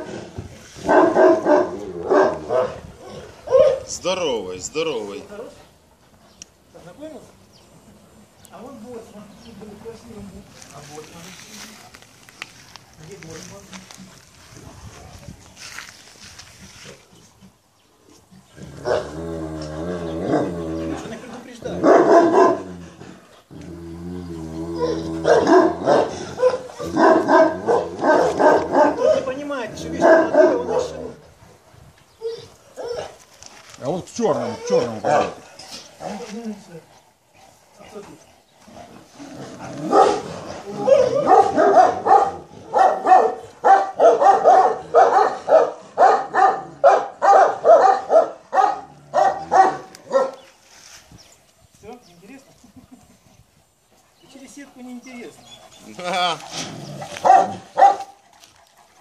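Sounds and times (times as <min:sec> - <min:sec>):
dogs barking: 0:00.8 - 0:04.2, 0:18.8 - 0:19.2, 0:20.2 - 0:20.6, 0:21.6 - 0:22.8, 0:24.8 - 0:31.2, 0:32.2 - 0:33.2, 0:34.5 - 0:36.2, 0:39.6 - 0:50.5, 0:57.0 - 0:59.0
dog growling: 0:18.4 - 0:31.3, 0:38.6 - 0:42.8, 0:55.3 - 0:58.5.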